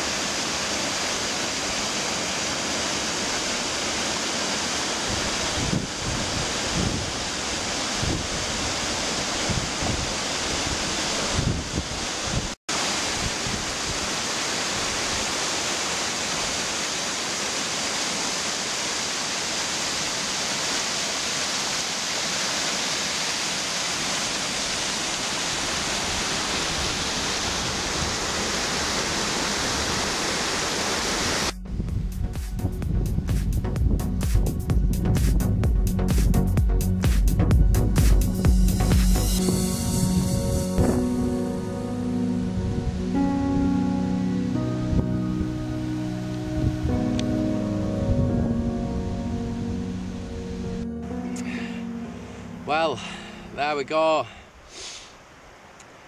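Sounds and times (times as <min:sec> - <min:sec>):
waterfall roaring: 0:00.0 - 0:31.6, 0:49.1 - 0:56.0
wind buffeting microphone: 0:05.1 - 0:12.6, 0:31.5 - 0:36.4, 0:47.9 - 0:50.0.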